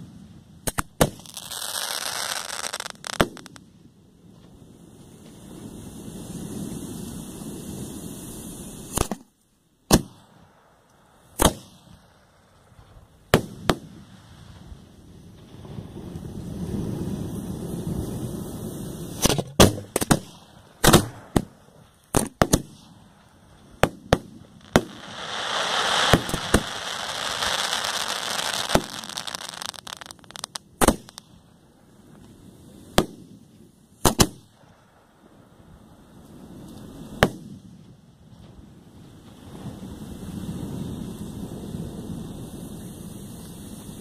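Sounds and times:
fireworks bangs: 0.0 - 3.6, 5.2 - 9.3, 9.9 - 31.4, 32.8 - 33.4, 34.0 - 34.9, 36.9 - 37.7
fireworks crackling: 0.0 - 44.0.

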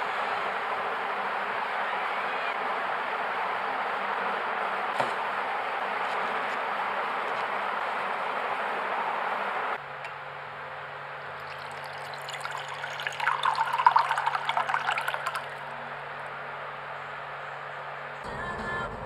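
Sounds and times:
faint steady hum: 9.6 - 19.0
water pouring into a ceramic mug: 11.4 - 15.7.

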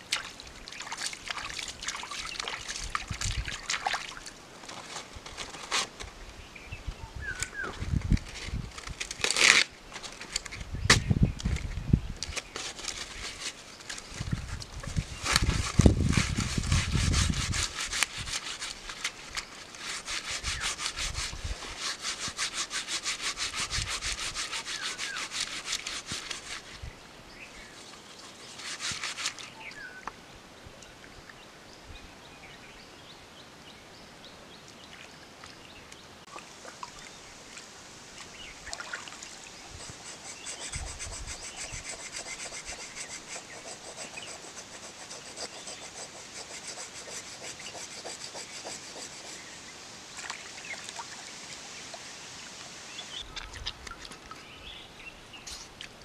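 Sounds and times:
rasping scraping on fish skin: 39.8 - 49.5.

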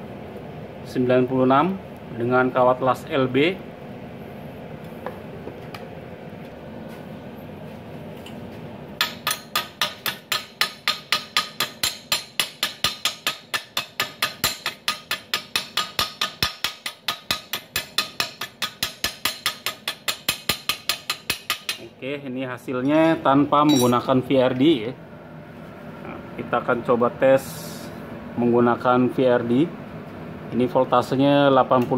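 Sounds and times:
chipping tool tapping metal: 9.0 - 21.9.

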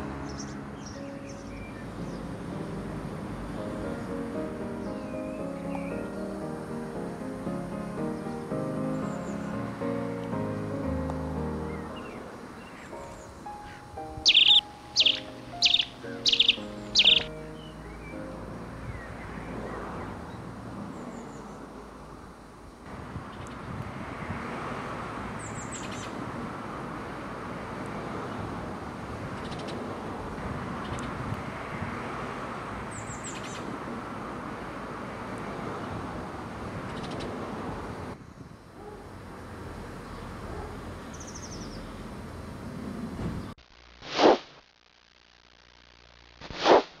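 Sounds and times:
rushing background noise: 0.0 - 43.6
outdoor garden background noise: 0.0 - 47.0
high rapid bird trill: 11.6 - 18.3
high falling bird whistles: 14.2 - 17.3
loud whooshes: 44.1 - 44.5, 46.5 - 47.0.

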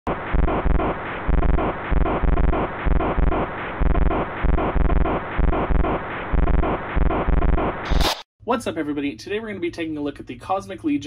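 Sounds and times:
sustained synth: 0.1 - 7.9
heavy bass thumps: 0.1 - 8.0.

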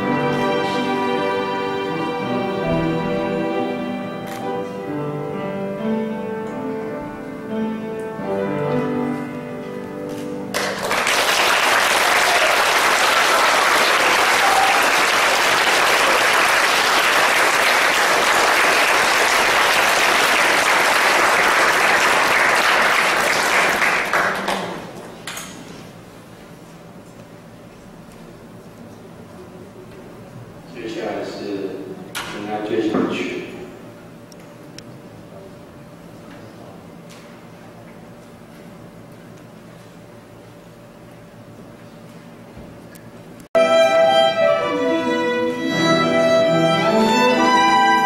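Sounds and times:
flute violins and piano playing: 0.0 - 4.7, 43.6 - 48.0
audience applause: 10.5 - 25.0.

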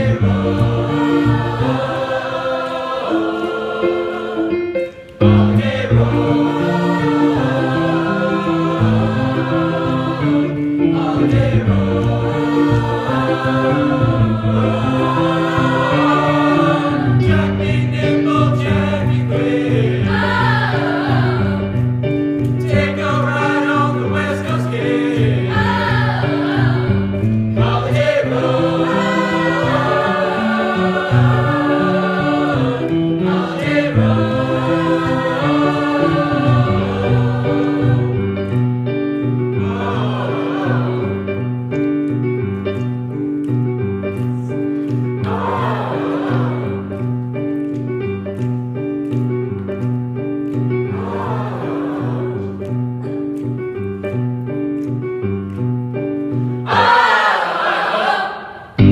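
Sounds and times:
mixed choir singing: 0.0 - 21.8, 22.6 - 38.6, 39.5 - 41.5, 45.2 - 47.2, 50.8 - 52.8, 56.6 - 58.9
electric keyboard bass line: 5.2 - 24.3, 25.2 - 52.2.

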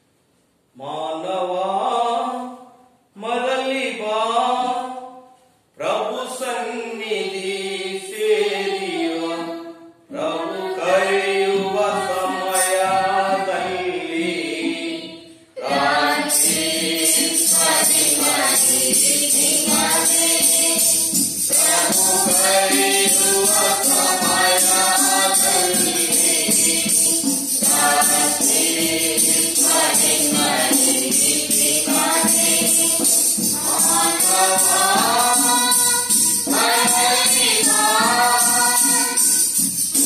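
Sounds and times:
voices singing a hymn: 5.8 - 40.0
tambourine jingling: 10.5 - 15.0, 15.6 - 40.0.

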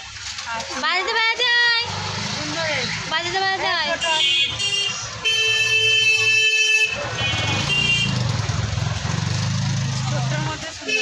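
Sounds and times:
vehicle horn honking: 4.0 - 8.6.

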